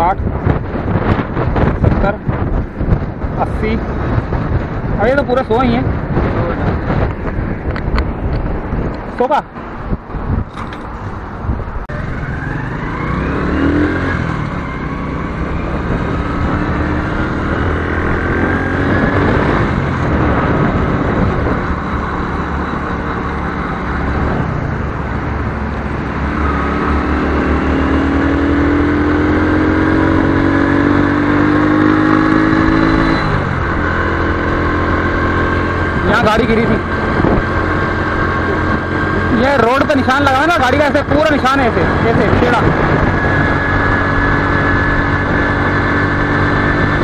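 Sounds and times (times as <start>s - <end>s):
small motorcycle engine accelerating: 12.0s - 24.3s, 26.1s - 39.8s.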